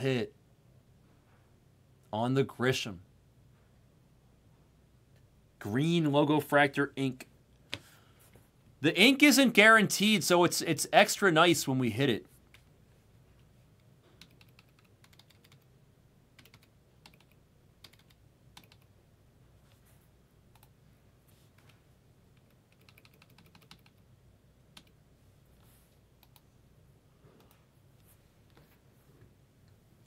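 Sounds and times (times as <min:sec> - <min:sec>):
computer keyboard typing: 0:14.2 - 0:15.7, 0:16.4 - 0:18.9, 0:22.4 - 0:24.0.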